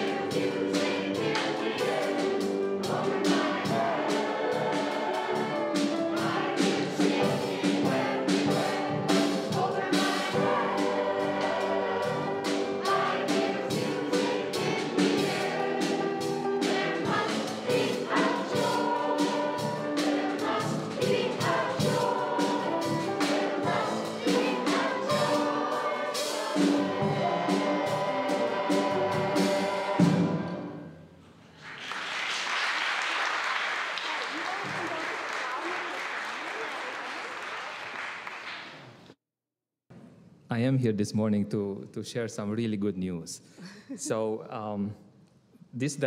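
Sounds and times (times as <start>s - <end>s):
choir singing with accompaniment: 0.0s - 31.1s
congregation applauding: 31.5s - 39.1s.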